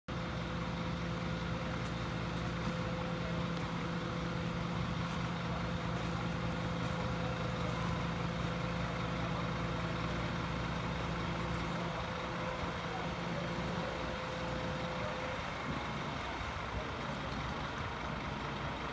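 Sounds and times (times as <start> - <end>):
fire engines running: 0.1 - 18.9.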